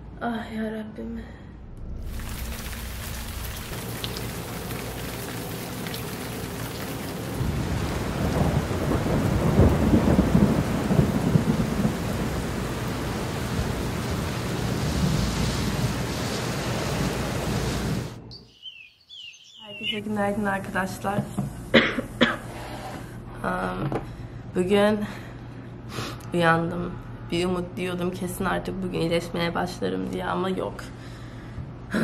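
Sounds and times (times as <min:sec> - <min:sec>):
low roll of thunder: 0:01.6 - 0:18.2
steady rain: 0:02.0 - 0:18.2.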